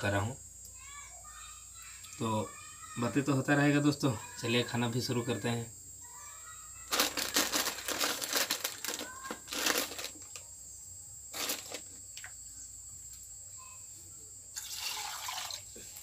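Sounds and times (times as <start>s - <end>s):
plastic bag crinkling: 6.9s - 10.4s, 11.3s - 11.9s.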